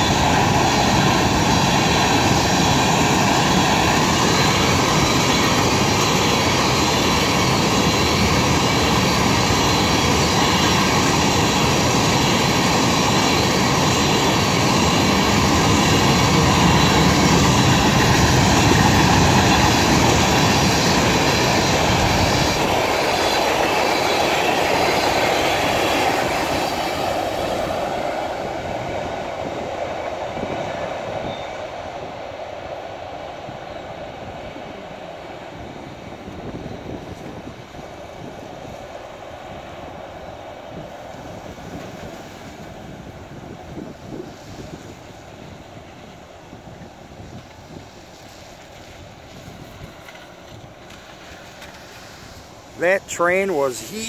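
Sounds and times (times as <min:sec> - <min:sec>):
steel wheels clattering on rails: 0:00.0 - 0:28.2
freight train rolling past: 0:00.0 - 0:54.0.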